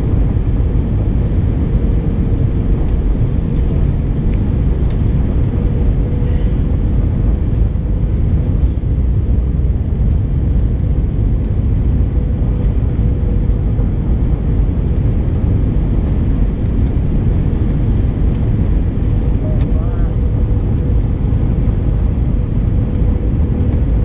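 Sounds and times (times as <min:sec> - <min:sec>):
jet engines and airflow rumble: 0:00.0 - 0:24.0.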